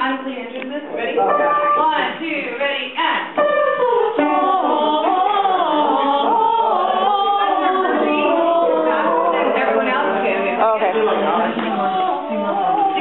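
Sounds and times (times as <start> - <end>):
choir singing: 3.4 - 13.0.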